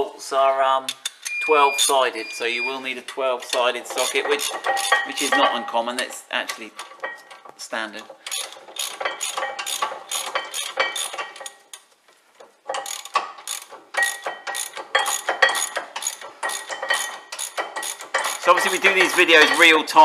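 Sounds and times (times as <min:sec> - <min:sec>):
hand ratchet clicking: 0:03.4 - 0:05.4, 0:08.1 - 0:11.9, 0:12.7 - 0:20.0.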